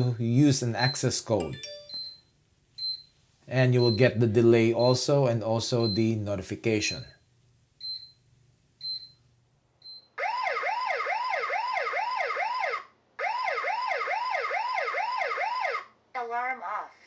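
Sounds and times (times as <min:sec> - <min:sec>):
short high beeps: 0:00.8 - 0:03.1
warbling alarm siren: 0:10.2 - 0:15.9.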